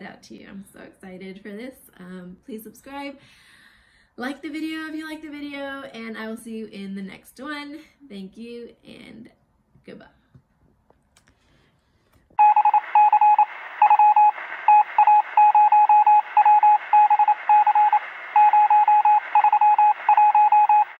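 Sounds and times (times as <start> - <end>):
morse code beeps: 12.4 - 21.0
radio static hiss: 12.4 - 21.0.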